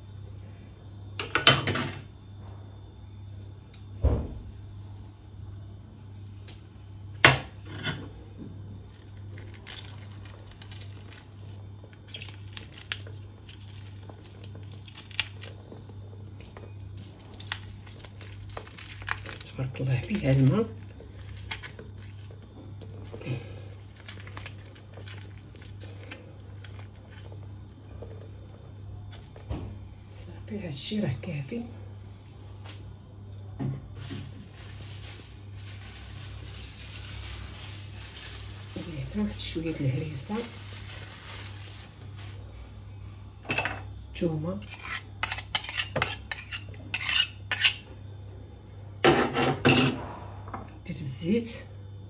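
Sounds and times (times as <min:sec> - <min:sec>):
steady low hum: 0:00.0 - 0:52.0
metal spoon clinking and scraping: 0:44.6 - 0:47.8.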